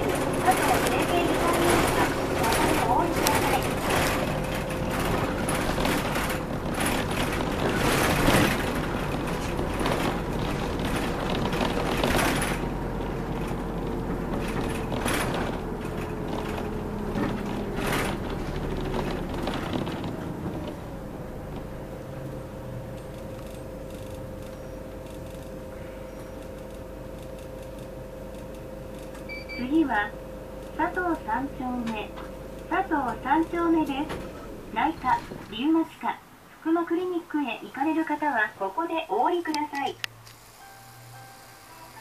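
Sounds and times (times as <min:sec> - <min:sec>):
knocks and rattles in bus cabin: 0:00.0 - 0:40.0
bus engine and road noise: 0:00.0 - 0:42.0
faint steady whine: 0:22.4 - 0:42.0.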